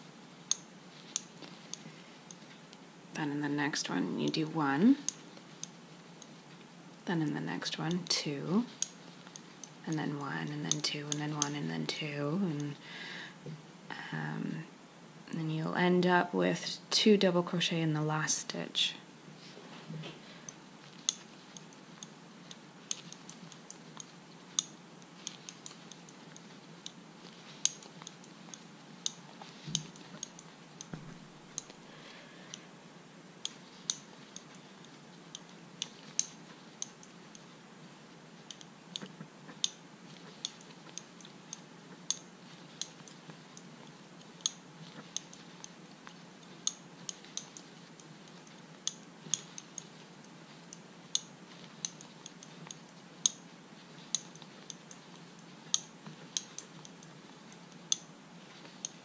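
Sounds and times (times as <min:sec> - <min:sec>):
crochet hook clicking: 0:04.0 - 0:05.8, 0:08.7 - 0:11.7, 0:22.9 - 0:31.8, 0:33.4 - 0:37.2, 0:38.5 - 0:59.0.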